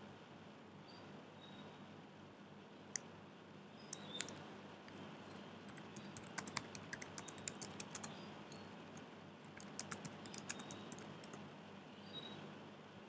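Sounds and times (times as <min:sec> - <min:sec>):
faint room hum: 0:00.0 - 0:13.0
keyboard typing: 0:03.9 - 0:11.4.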